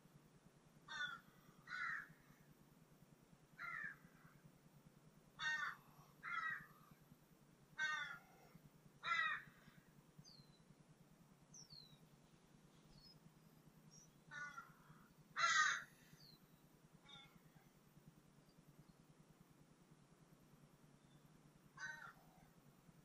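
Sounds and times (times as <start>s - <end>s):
bird calling: 0.9s - 2.3s, 5.4s - 7.0s, 7.8s - 10.7s, 13.9s - 17.6s, 21.8s - 22.5s.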